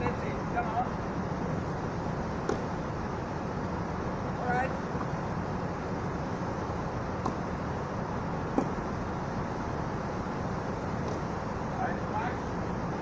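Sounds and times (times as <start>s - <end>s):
steady background hiss: 0.0s - 13.0s
tennis ball impacts: 2.4s - 2.8s, 7.2s - 7.5s, 8.5s - 8.9s, 11.0s - 11.4s.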